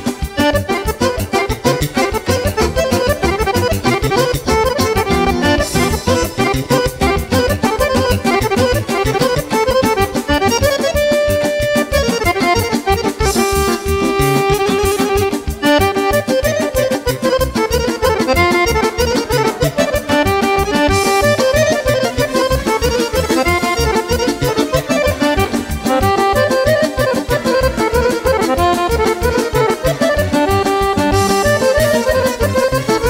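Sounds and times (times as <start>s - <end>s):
accordion melody: 0.0s - 33.0s
fast steady beat: 0.0s - 33.0s
violin: 0.0s - 33.0s.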